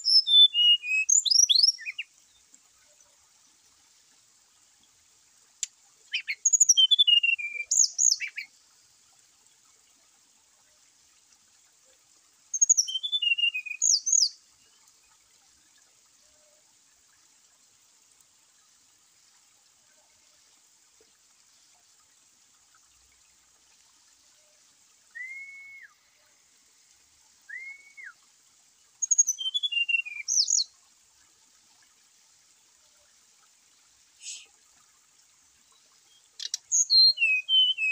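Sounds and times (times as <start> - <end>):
bird singing whistled notes: 0.0 - 2.1, 6.1 - 8.5, 12.5 - 14.4, 25.1 - 26.1, 27.5 - 28.2, 29.0 - 30.7, 36.1 - 37.9.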